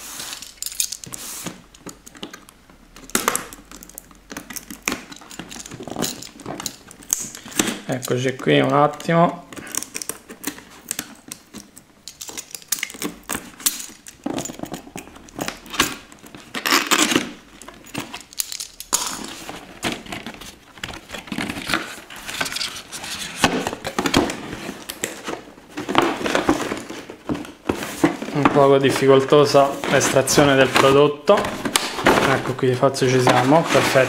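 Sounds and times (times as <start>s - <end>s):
cardboard box rustling and scraping: 19.2s - 34.0s.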